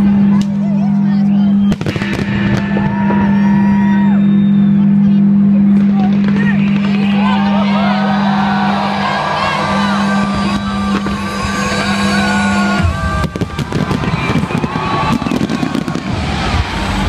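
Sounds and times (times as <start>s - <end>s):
steady low note: 0.0s - 17.0s
firework whistles: 1.3s - 4.8s, 10.0s - 16.9s
firework bangs and crackles: 1.6s - 4.1s, 5.7s - 7.5s, 9.7s - 17.0s.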